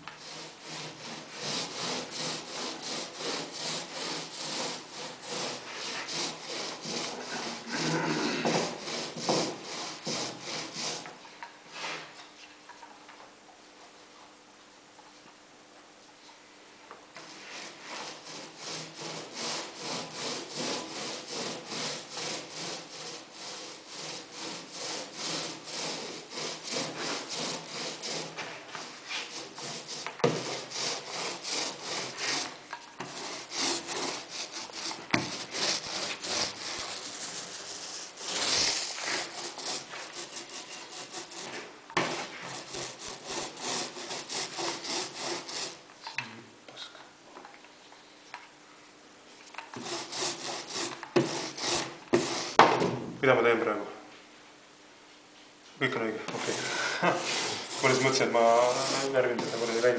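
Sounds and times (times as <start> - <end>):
paint roller swishing: 0.0 - 12.2, 17.2 - 45.8, 49.8 - 52.7, 56.3 - 59.9.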